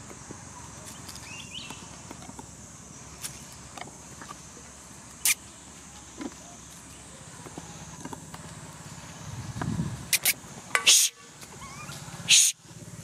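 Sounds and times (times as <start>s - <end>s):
steady low hum: 0.0s - 13.0s
monkeys squealing: 10.1s - 12.6s.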